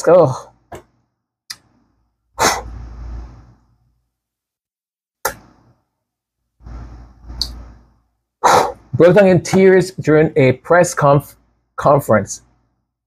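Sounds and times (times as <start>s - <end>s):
person breathing: 2.4s - 3.6s, 6.6s - 8.9s.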